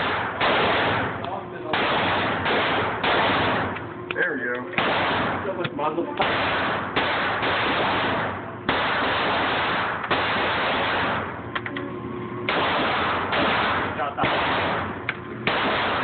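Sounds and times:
pistol shots echoing indoors: 0:00.0 - 0:01.1, 0:01.7 - 0:03.8, 0:04.8 - 0:05.3, 0:06.2 - 0:11.3, 0:12.5 - 0:14.9, 0:15.5 - 0:16.0.

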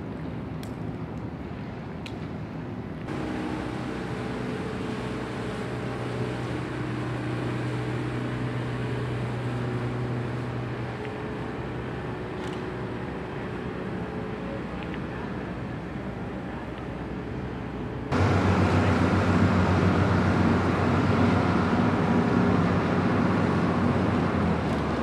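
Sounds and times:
boat engine running: 0:03.1 - 0:25.0.

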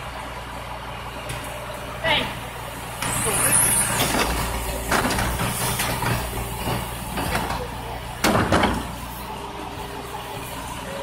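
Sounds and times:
garbage truck idling: 0:00.0 - 0:11.0
trash cart clanking: 0:02.9 - 0:10.6
cart clattering down: 0:03.0 - 0:09.0.

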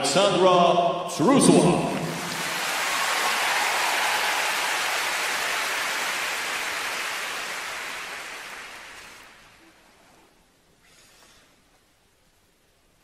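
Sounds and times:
audience applauding: 0:01.9 - 0:09.7.

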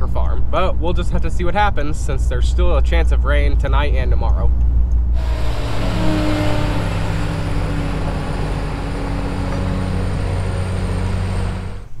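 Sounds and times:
road noise: 0:02.6 - 0:12.0
truck engine running: 0:05.1 - 0:12.0.

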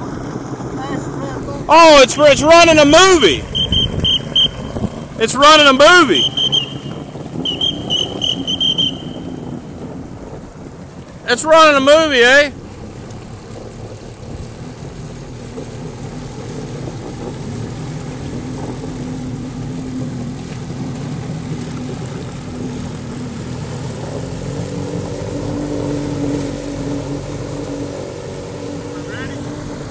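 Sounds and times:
jet ski engines droning: 0:00.0 - 0:29.9.

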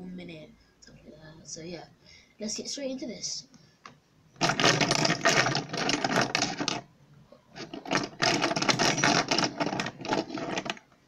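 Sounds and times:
fidget spinners clattering: 0:04.4 - 0:06.8, 0:07.6 - 0:10.8.

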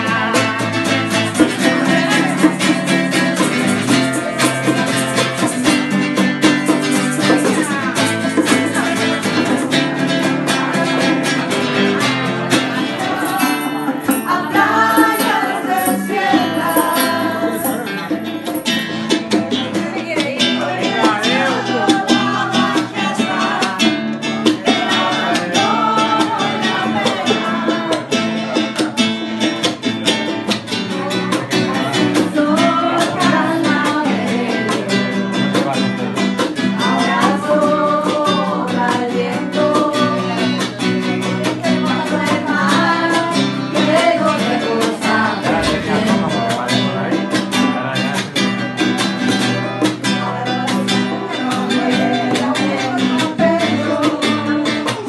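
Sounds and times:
women singing: 0:00.0 - 0:28.8, 0:29.9 - 0:35.6, 0:36.4 - 0:47.8, 0:49.8 - 0:55.0
acoustic guitar strumming: 0:00.0 - 0:55.0.

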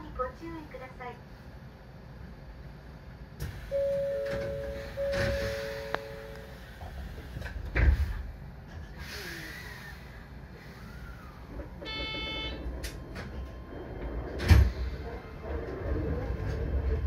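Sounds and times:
train doors thumping: 0:03.4 - 0:08.9, 0:11.6 - 0:16.9
short buzzer tone: 0:03.7 - 0:06.5, 0:11.9 - 0:12.6.

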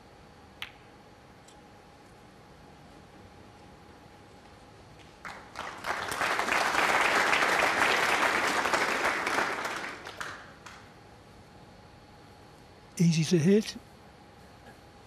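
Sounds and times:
audience applauding: 0:05.2 - 0:10.8.

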